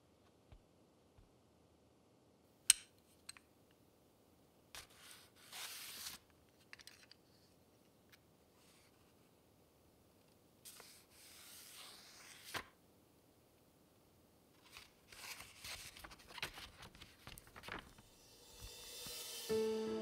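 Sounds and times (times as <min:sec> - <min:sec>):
paper rustling and crinkling: 0:04.8 - 0:07.5, 0:10.7 - 0:12.8, 0:14.6 - 0:18.1.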